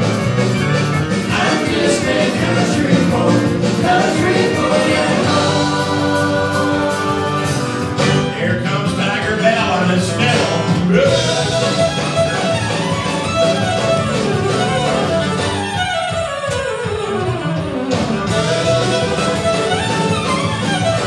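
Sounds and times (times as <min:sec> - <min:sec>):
fiddle playing lead: 0:00.0 - 0:10.2, 0:10.9 - 0:21.0
bass guitar: 0:00.0 - 0:21.0
electric and acoustic guitars: 0:00.0 - 0:21.0
live country band playing: 0:00.0 - 0:21.0.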